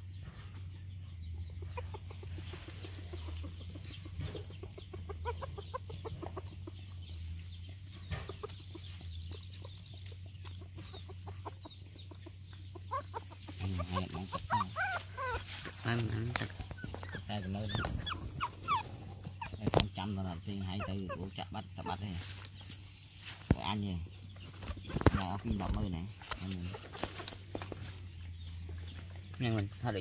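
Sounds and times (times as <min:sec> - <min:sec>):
puppies whimpering: 0:04.0 - 0:07.3, 0:11.0 - 0:22.3.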